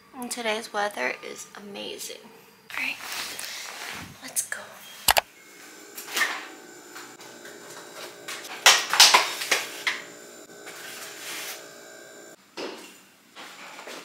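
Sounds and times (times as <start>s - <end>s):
faint steady hum: 2.7s - 12.4s.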